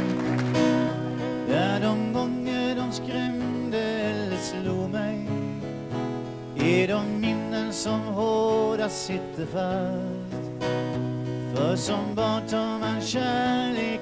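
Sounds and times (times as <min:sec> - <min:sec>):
acoustic guitar: 0:00.0 - 0:14.0
man singing: 0:01.2 - 0:05.9, 0:06.5 - 0:10.4, 0:11.5 - 0:14.0.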